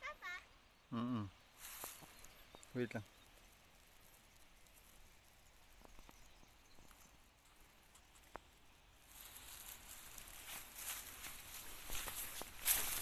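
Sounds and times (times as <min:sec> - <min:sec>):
rustling hiss: 0:00.0 - 0:13.0.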